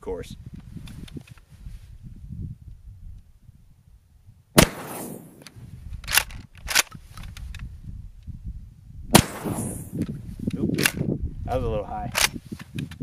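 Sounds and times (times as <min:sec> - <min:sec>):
shotgun shots with echo: 0:04.6 - 0:05.4, 0:09.1 - 0:10.0.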